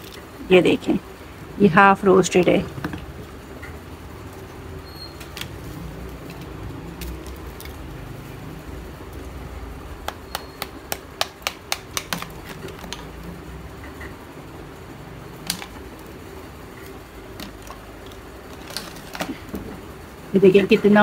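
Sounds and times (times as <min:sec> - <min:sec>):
clay pieces clicking: 0:05.3 - 0:08.1, 0:10.0 - 0:13.4, 0:15.4 - 0:16.1, 0:16.8 - 0:19.7.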